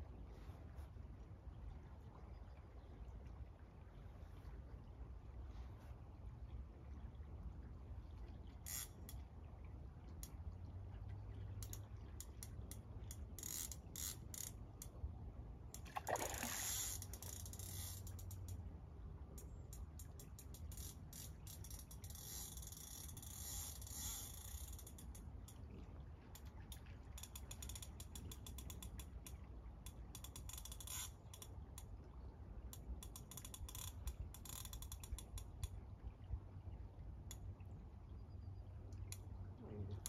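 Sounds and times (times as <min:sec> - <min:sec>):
fishing reel ratchet clicking: 0:13.4 - 0:14.6, 0:16.4 - 0:18.6, 0:20.0 - 0:25.2, 0:29.9 - 0:31.5, 0:33.0 - 0:35.7.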